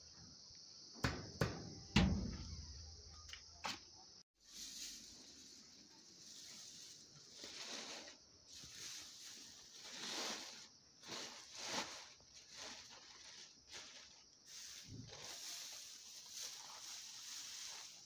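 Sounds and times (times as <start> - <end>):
dry greens rustling: 4.4 - 18.0
plastic bag crinkling: 9.5 - 14.2.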